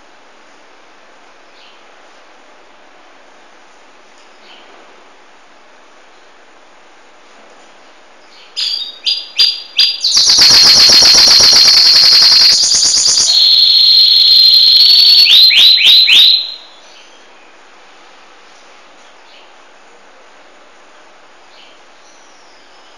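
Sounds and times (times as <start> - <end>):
canary singing trills: 8.3 - 17.2.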